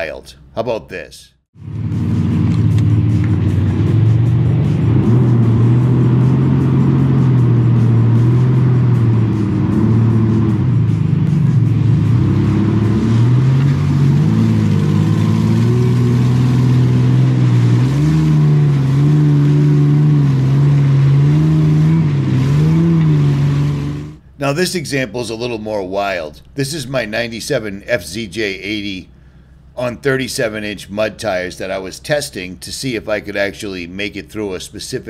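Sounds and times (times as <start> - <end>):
truck engine revving hard: 1.6 - 24.4.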